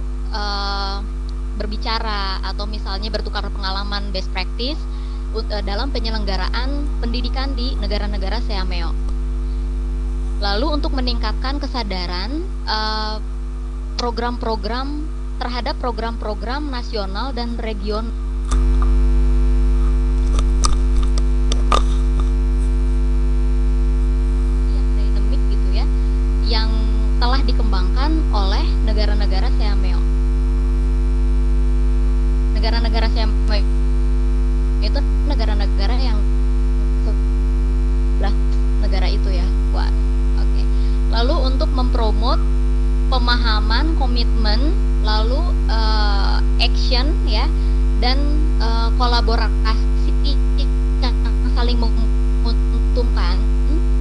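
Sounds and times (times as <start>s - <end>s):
electrical mains hum: 0.0s - 54.0s.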